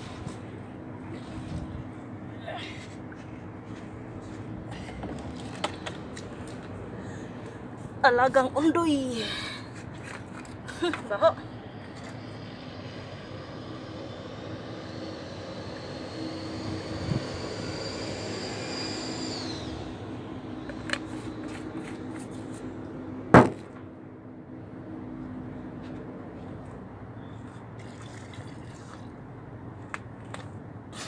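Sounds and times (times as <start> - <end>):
jet aircraft rumble and whine: 0.0 - 27.2
sharp knock: 23.3 - 23.7.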